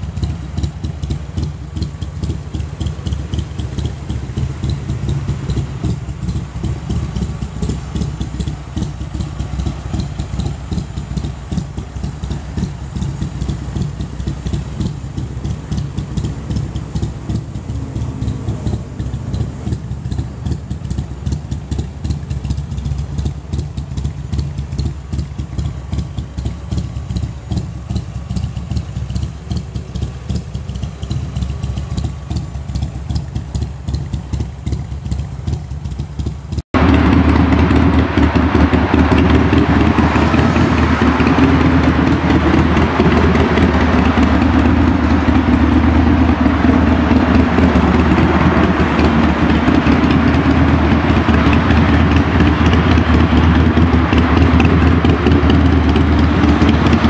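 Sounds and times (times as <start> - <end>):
motorcycle engine idling: 0.0 - 57.0.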